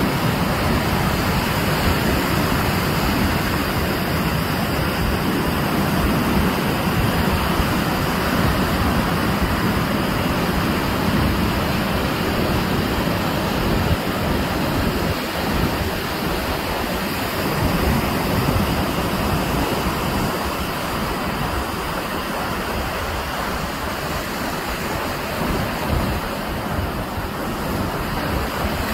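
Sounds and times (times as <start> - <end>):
ocean surf breaking: 0.0 - 28.9.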